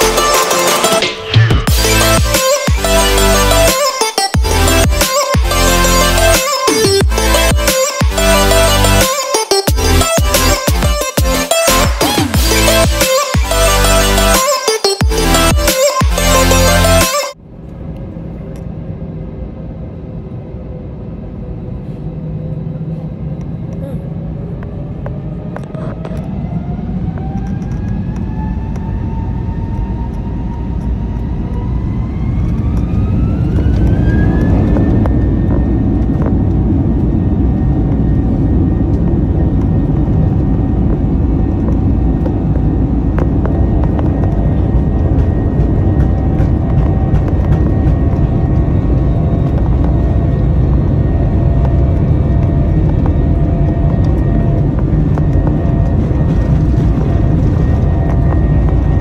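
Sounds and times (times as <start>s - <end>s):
jet engine rumble: 17.3s - 59.0s
jet engine whine: 17.3s - 59.0s.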